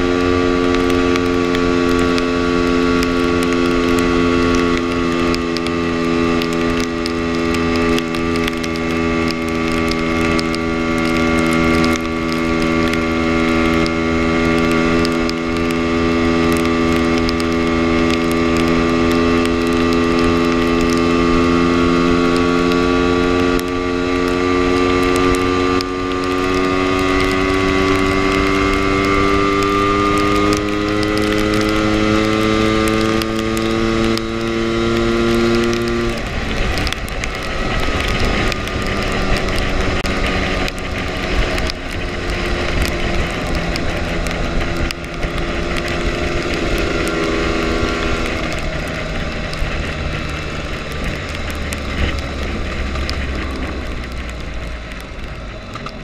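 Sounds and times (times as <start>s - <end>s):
low wind rumble: 0.0s - 56.0s
scooter engine running: 0.0s - 56.0s.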